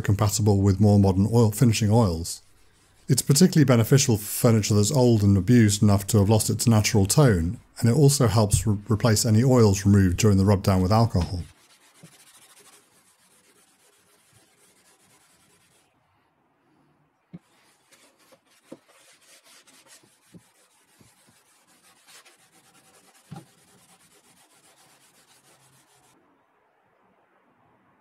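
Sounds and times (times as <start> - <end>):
pad rubbing on wood: 10.2 - 15.9, 17.4 - 26.2.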